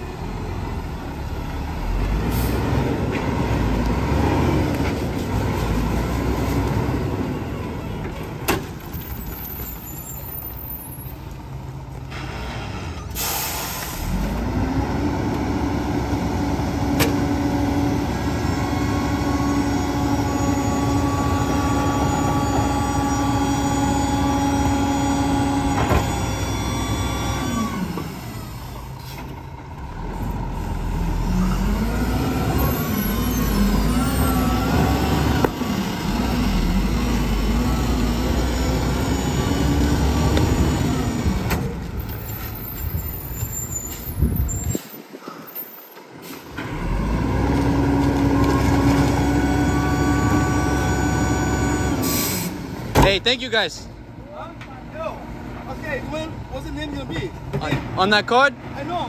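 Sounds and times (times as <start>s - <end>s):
diesel engine running: 9.5s - 44.5s, 46.6s - 53.2s
hydraulic packer compacting trash: 12.1s - 29.4s, 46.3s - 53.1s
air brake hiss: 13.1s - 14.2s, 52.0s - 52.6s.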